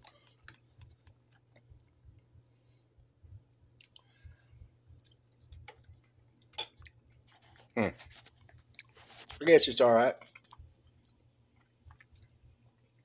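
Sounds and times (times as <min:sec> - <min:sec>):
low steady hum: 0:00.0 - 0:13.0
mouth clicks and lip smacks: 0:03.8 - 0:04.1, 0:10.2 - 0:12.4.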